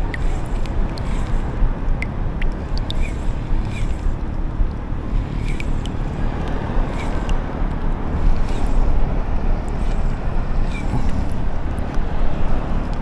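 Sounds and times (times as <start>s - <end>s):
wind buffeting microphone: 0.0s - 13.0s
faint short ticks: 0.1s - 4.8s.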